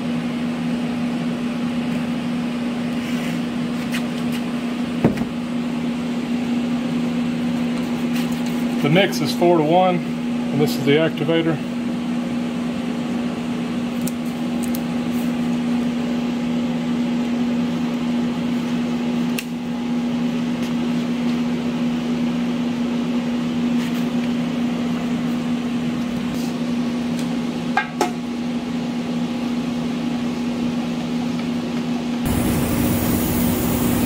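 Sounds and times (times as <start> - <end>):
electric motor hum: 32.3 - 34.0.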